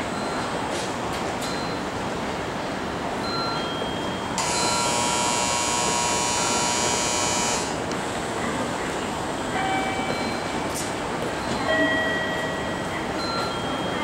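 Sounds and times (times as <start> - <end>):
station platform background noise: 0.0 - 14.0
electronic buzzer: 4.4 - 7.8.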